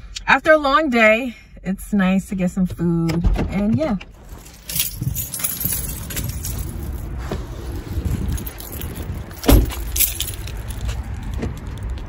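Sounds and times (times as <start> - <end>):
car cabin rumble: 2.4 - 11.8
light jingling clatter: 4.2 - 11.0.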